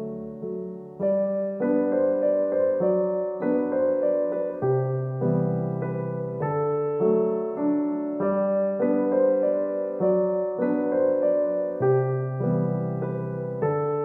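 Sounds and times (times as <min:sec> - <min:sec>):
soft piano chords: 0:00.0 - 0:14.0.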